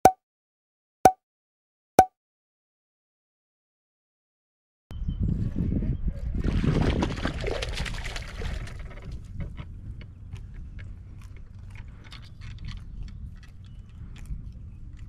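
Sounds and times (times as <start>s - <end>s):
wind rumble on microphone: 4.9s - 15.0s
water splashing: 6.5s - 8.9s
sharp clicks and crunchy ticks: 8.8s - 15.0s.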